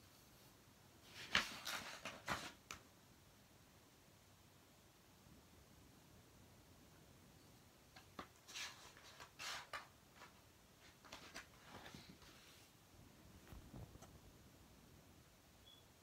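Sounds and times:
faint paper rustling: 0.3 - 2.8, 7.9 - 12.8, 13.4 - 14.3.

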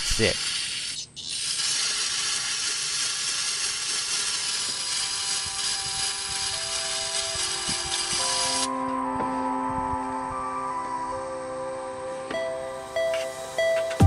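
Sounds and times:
aerosol spray hissing: 0.0 - 8.7
faint music: 4.7 - 14.0.

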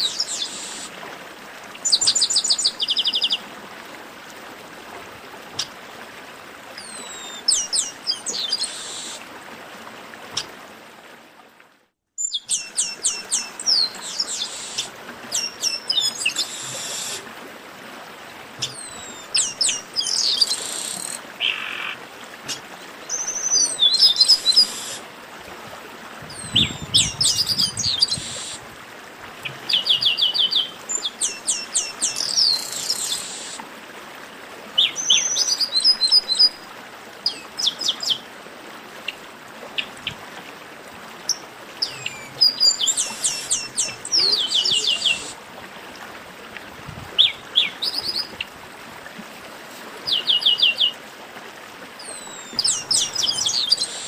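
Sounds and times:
blackbird song: 12.2 - 17.2, 18.6 - 21.9, 23.1 - 25.0, 26.3 - 28.6, 29.4 - 33.6, 41.8 - 45.4, 52.0 - 54.0.

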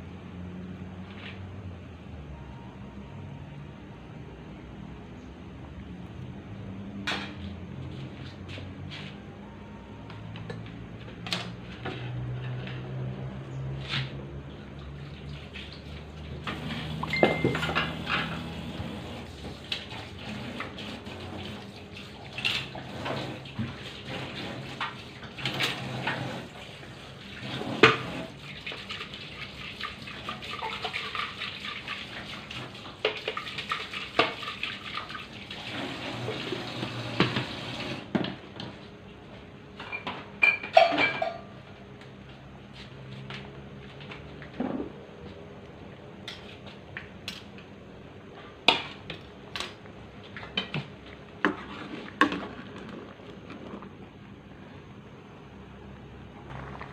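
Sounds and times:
water running from a tap: 15.2 - 38.0
pots and dishes clinking: 16.5 - 18.5, 39.8 - 41.6.

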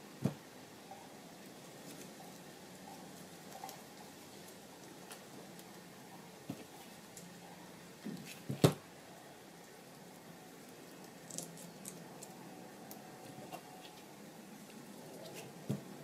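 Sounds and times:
faint ticks and rustles: 0.9 - 8.4.

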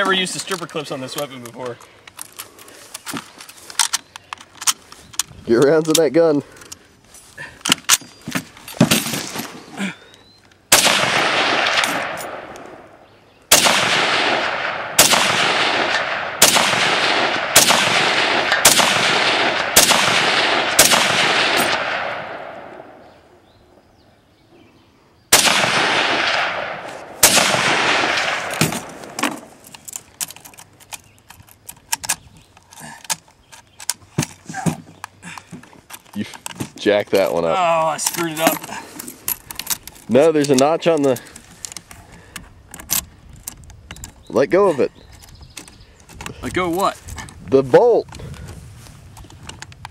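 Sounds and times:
metallic rifle handling clicks: 0.0 - 6.8, 28.1 - 34.4, 37.9 - 44.2
rifle shots echoing: 10.7 - 23.1, 25.3 - 29.6.

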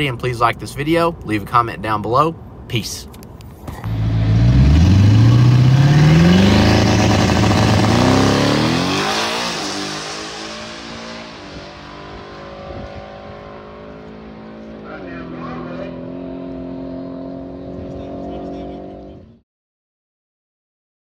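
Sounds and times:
car engine accelerating hard: 3.8 - 19.4.

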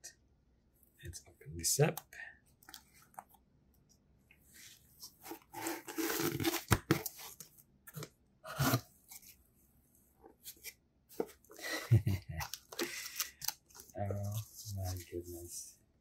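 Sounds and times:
cardboard scraping and crackling: 5.0 - 9.4.

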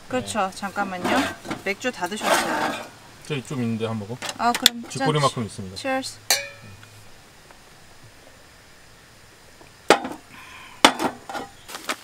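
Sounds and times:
metal mugs clinking: 1.0 - 3.0, 6.3 - 7.0.

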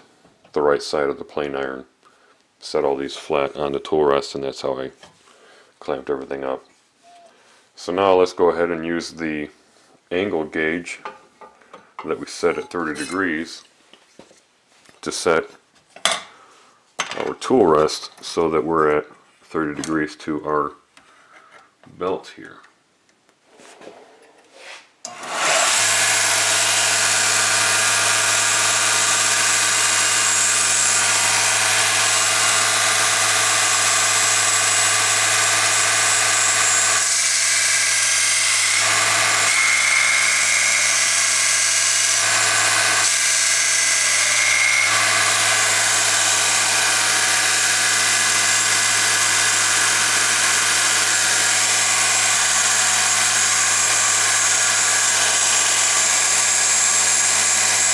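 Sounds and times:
belt sander motor hum: 25.1 - 57.9.

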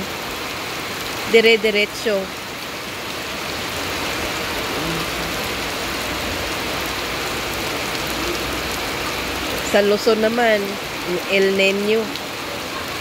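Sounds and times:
rain falling on wet grass: 0.0 - 13.0.

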